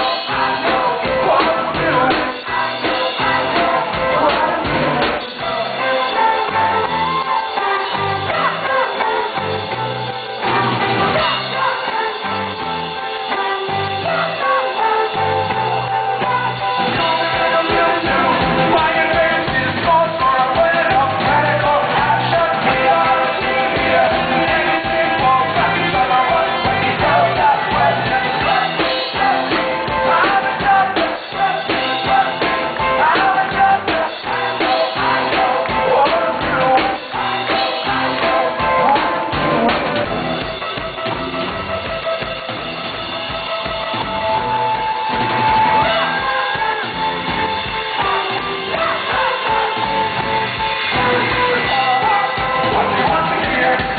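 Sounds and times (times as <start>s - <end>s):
man singing: 0.0s - 9.2s, 16.0s - 40.0s, 45.5s - 47.1s, 48.0s - 53.9s
drums with steady beat: 0.0s - 53.9s
electric guitar: 0.0s - 53.9s.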